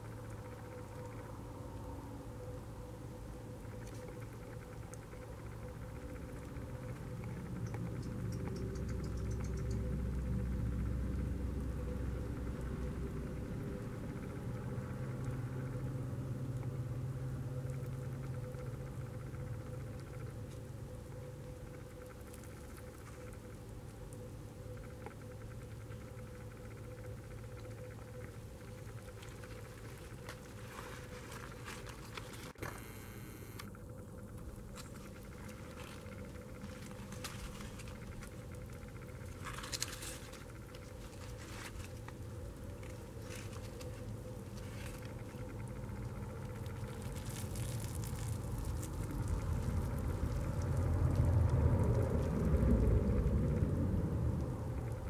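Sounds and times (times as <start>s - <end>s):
low steady hum: 0.0s - 55.0s
soft crackling and rustling: 21.6s - 55.0s
low rumble: 42.7s - 55.0s
hand rummaging through wet compost: 47.0s - 50.0s.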